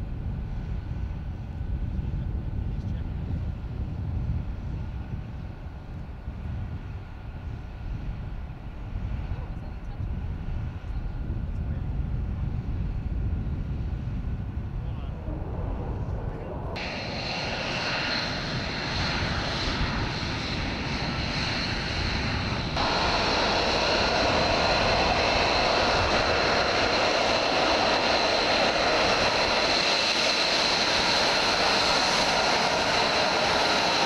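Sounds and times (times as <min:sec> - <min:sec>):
jet engine running: 0:00.3 - 0:34.0
high engine whine: 0:11.1 - 0:34.0.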